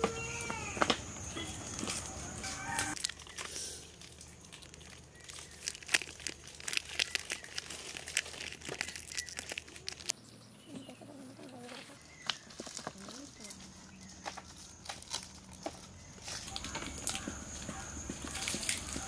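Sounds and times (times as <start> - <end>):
wrapper crinkling being torn: 1.8 - 10.2, 12.2 - 17.2, 18.3 - 19.0.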